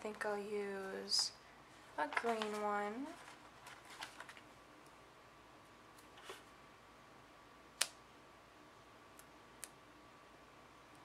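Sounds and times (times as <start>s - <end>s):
paper handling: 2.0s - 4.5s.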